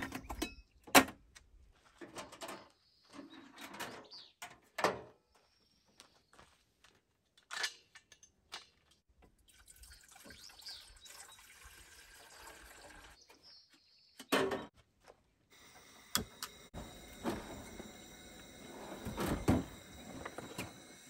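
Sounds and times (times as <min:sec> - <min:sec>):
water pouring into metal pot: 0:09.4 - 0:13.2.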